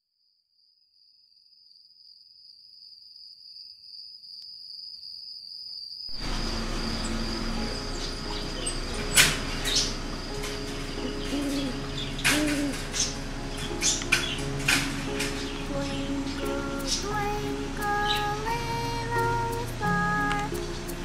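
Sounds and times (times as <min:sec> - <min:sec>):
high-pitched whine: 0:06.1 - 0:21.0
low hum: 0:06.1 - 0:21.0.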